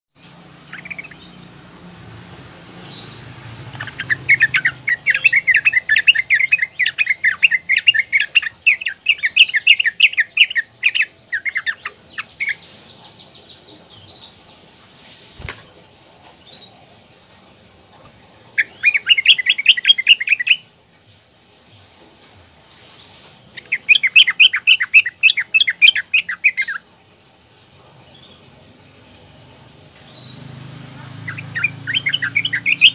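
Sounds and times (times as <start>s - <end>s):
bird bubbling chatter song: 0.7s - 1.4s, 3.7s - 12.7s, 18.3s - 20.7s, 23.6s - 27.0s, 31.2s - 32.9s.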